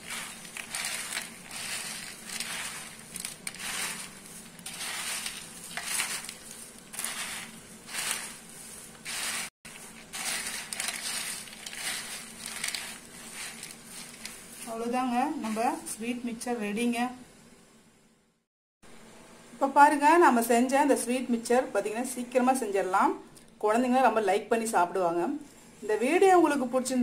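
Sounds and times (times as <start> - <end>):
dry snack rustling on steel plate: 0.0 - 16.1.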